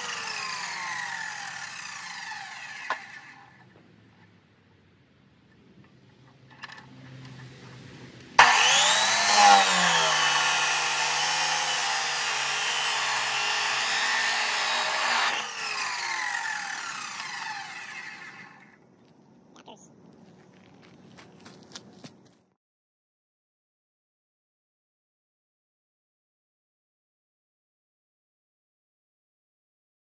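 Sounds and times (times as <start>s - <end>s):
saw grinding through steel pipe: 0.0s - 3.3s, 8.4s - 18.6s
chop saw whining: 0.0s - 3.6s, 8.4s - 18.8s.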